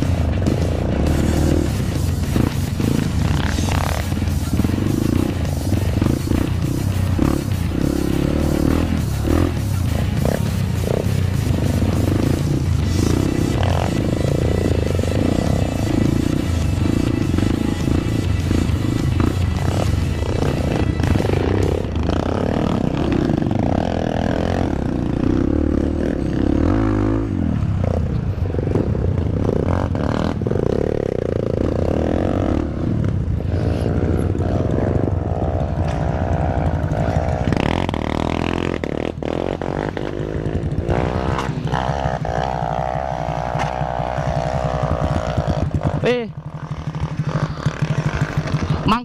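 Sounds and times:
motorcycle engine revving: 0:00.0 - 0:49.0
bike knocks and rattles: 0:43.3 - 0:48.9.

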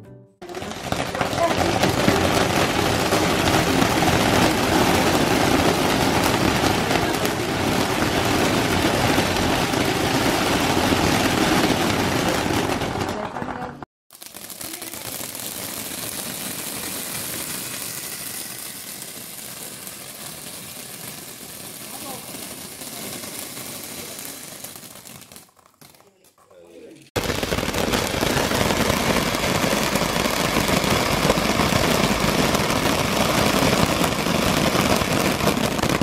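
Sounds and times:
firework sparks hissing: 0:00.5 - 0:13.2, 0:14.1 - 0:26.0, 0:27.1 - 0:36.0
firework pops: 0:00.5 - 0:20.6.

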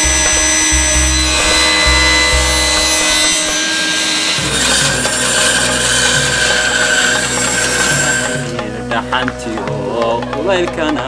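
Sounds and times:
saw blade rasping through wood: 0:00.0 - 0:10.5
power saw whine: 0:00.0 - 0:11.0.

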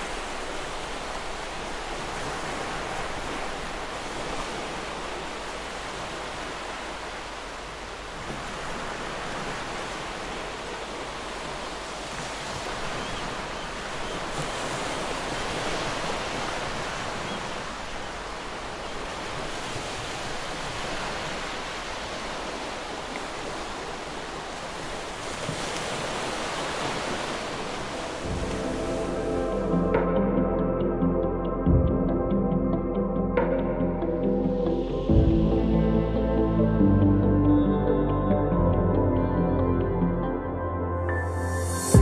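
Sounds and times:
ocean surf on rocky shore: 0:00.0 - 0:30.1.

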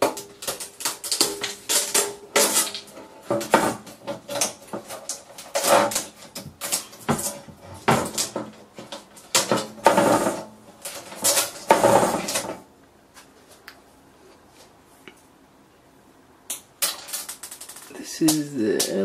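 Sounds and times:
scraping and clattering plastic and metal: 0:00.0 - 0:12.7, 0:16.8 - 0:19.0.

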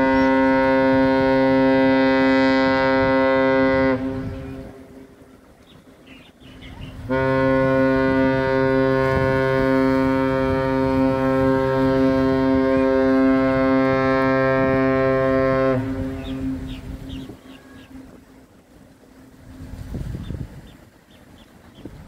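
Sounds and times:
deep ship horn blast: 0:00.0 - 0:05.2, 0:06.9 - 0:18.4.

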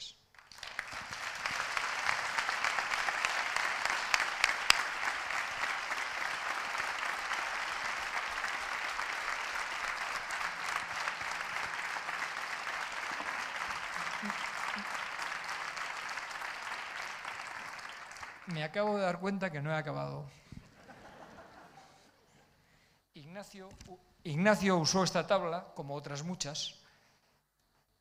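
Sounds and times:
audience applauding: 0:00.3 - 0:18.7.

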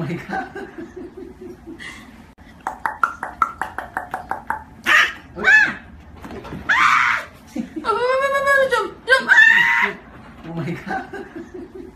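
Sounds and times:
puppy yipping: 0:04.8 - 0:05.8
puppy yelping: 0:04.8 - 0:06.0.

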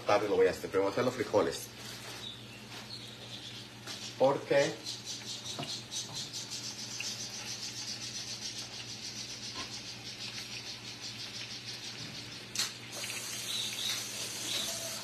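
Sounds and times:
sausage sizzling in a skillet: 0:06.7 - 0:15.0.

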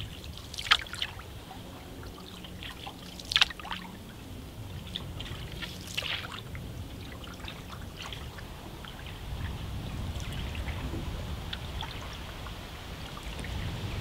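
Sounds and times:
water dripping from paddle: 0:00.0 - 0:13.8
sharp paddle splash: 0:00.2 - 0:01.2, 0:02.5 - 0:03.9, 0:04.9 - 0:06.5.

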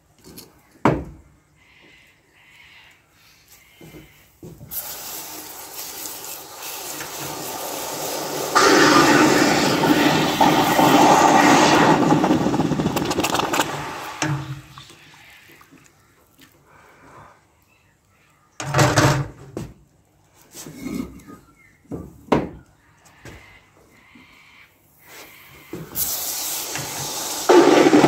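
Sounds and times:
hot metal sizzling in water: 0:04.7 - 0:14.9, 0:26.0 - 0:28.0.

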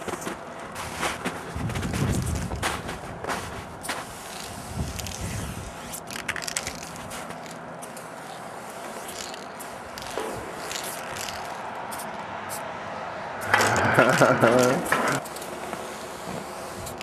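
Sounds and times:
sharp clicks and crunches: 0:00.0 - 0:12.6, 0:13.4 - 0:17.0
spray paint can hissing: 0:03.8 - 0:12.6, 0:13.4 - 0:17.0.

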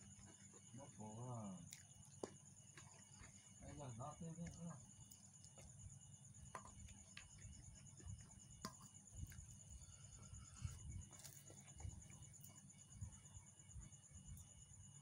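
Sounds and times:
chewing clicks: 0:01.7 - 0:03.3.

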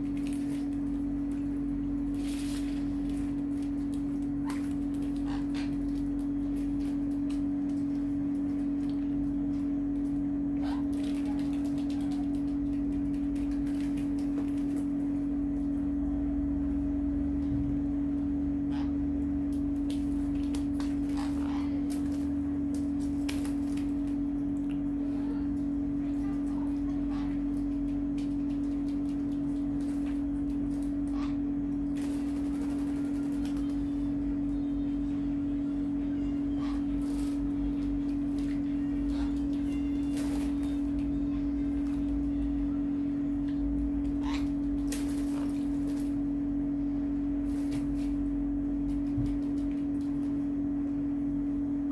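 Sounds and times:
parrots splashing in water: 0:00.0 - 0:15.3, 0:19.5 - 0:34.1, 0:36.6 - 0:42.5, 0:44.0 - 0:46.4, 0:47.4 - 0:50.4
steady low hum: 0:00.0 - 0:51.9.

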